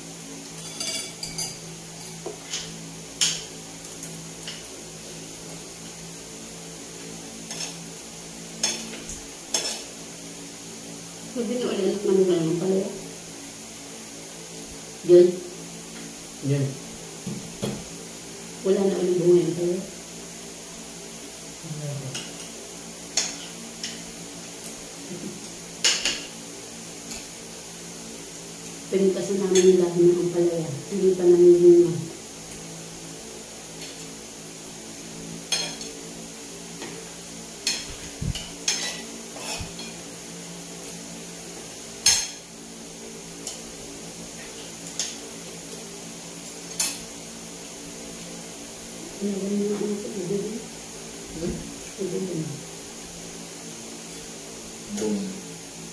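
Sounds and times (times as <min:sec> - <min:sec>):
steady low hum: 0:00.0 - 0:55.9
tableware clinking on a plate: 0:00.6 - 0:03.5, 0:25.8 - 0:26.3, 0:35.5 - 0:36.0, 0:37.6 - 0:40.0, 0:42.0 - 0:42.4.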